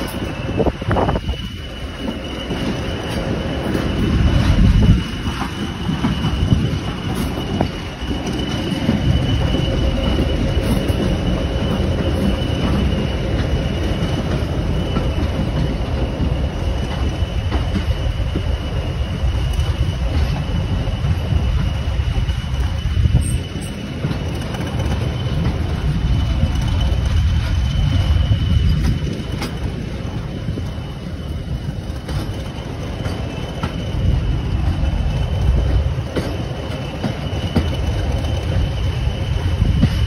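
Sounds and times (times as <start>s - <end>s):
high-pitched wheel squeal: 0.0s - 29.3s
train rumbling along track: 0.0s - 40.0s.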